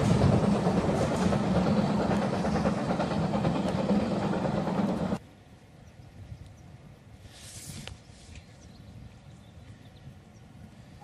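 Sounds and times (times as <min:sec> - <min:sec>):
train rumbling on rails: 0:00.0 - 0:05.2.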